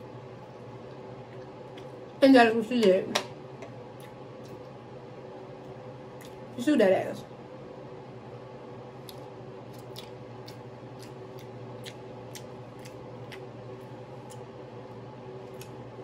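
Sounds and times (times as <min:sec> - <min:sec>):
wet mouth chewing clicks: 0:09.0 - 0:13.5.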